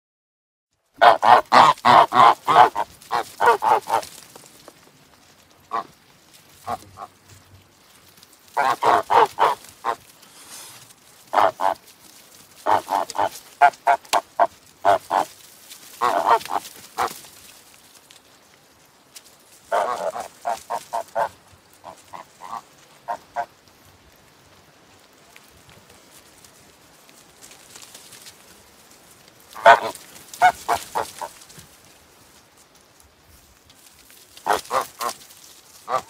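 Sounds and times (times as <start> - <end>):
waterfowl calling rapidly: 1.0 - 4.1, 5.7 - 5.9, 6.6 - 7.2, 8.6 - 10.7, 11.3 - 11.8, 12.6 - 15.3, 16.0 - 17.2, 19.7 - 23.5, 29.6 - 31.4, 34.4 - 35.2.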